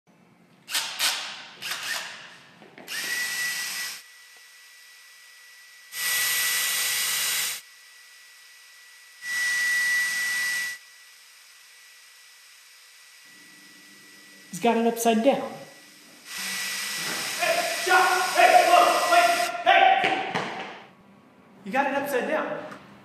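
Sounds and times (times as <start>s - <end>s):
drill driving screws: 0.7s - 2.3s, 2.9s - 5.0s, 5.8s - 8.2s, 8.8s - 13.2s, 16.2s - 19.5s.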